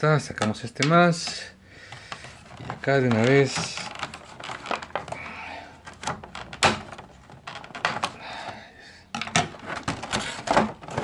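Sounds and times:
plastic packaging crinkling: 0:02.2 - 0:08.2, 0:09.3 - 0:11.0.

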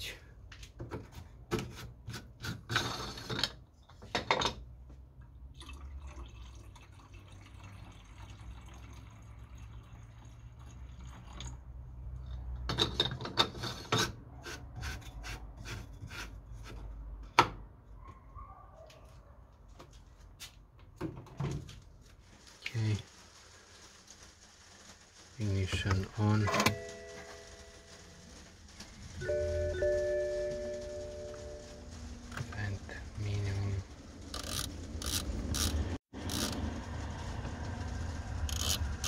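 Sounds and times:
liquid trickling into tank: 0:05.3 - 0:12.6.

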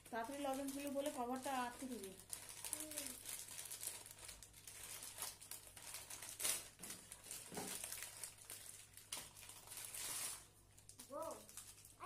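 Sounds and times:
plastic candy wrappers crinkling: 0:00.0 - 0:12.0.

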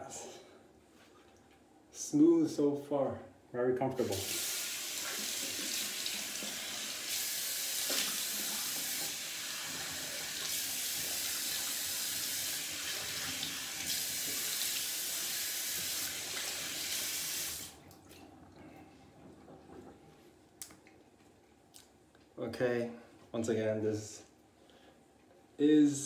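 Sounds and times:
tap water splashing into sink: 0:07.7 - 0:11.7.

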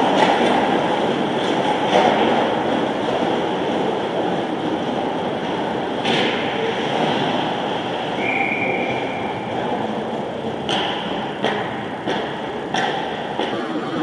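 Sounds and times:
arena noise: 0:00.0 - 0:14.0
referee's whistle blast: 0:08.2 - 0:09.3.

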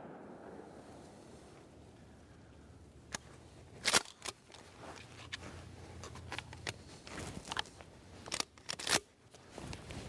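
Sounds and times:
faint low rumble: 0:00.0 - 0:03.8
rustling clicks and crackles: 0:03.1 - 0:10.0.

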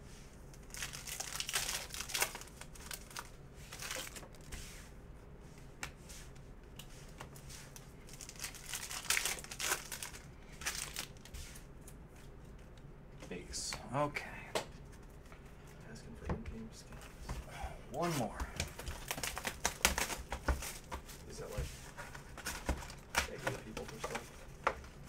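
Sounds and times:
foil wrapper tearing and crinkling: 0:00.6 - 0:04.2, 0:08.1 - 0:11.3, 0:18.8 - 0:20.3.

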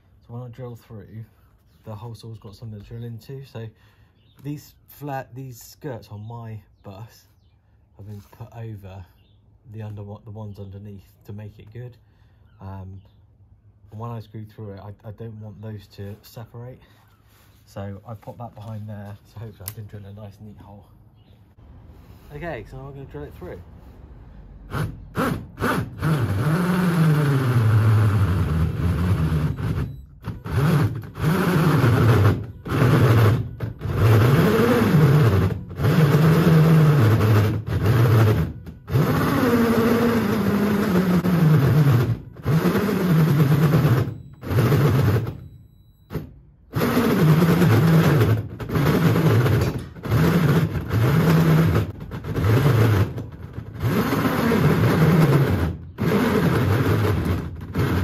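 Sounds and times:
cordless drill bogging under load: 0:24.7 - 0:58.0.

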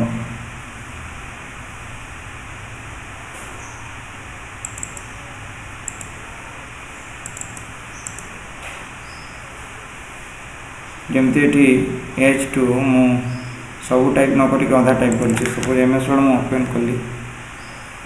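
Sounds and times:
background hiss and hum: 0:00.0 - 0:18.0
computer mouse clicking: 0:04.6 - 0:05.2, 0:05.8 - 0:06.2, 0:07.2 - 0:08.4, 0:15.1 - 0:15.8.

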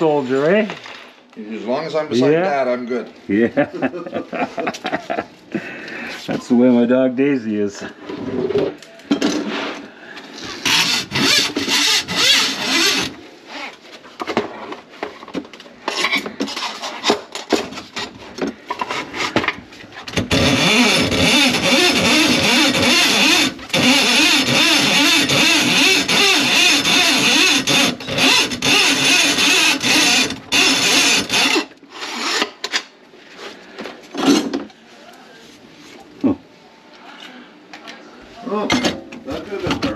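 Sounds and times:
electric drain-cleaning machine running: 0:10.6 - 0:13.2, 0:20.2 - 0:31.7.

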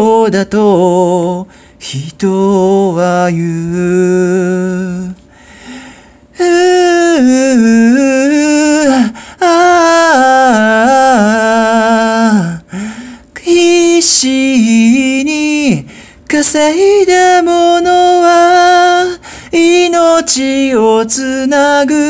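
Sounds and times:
person singing unaccompanied: 0:00.0 - 0:05.2, 0:06.4 - 0:12.8, 0:13.4 - 0:22.0
singer breathing: 0:01.4 - 0:01.8, 0:05.2 - 0:06.4, 0:09.1 - 0:09.4, 0:12.6 - 0:13.4, 0:15.8 - 0:16.3, 0:19.2 - 0:19.6.

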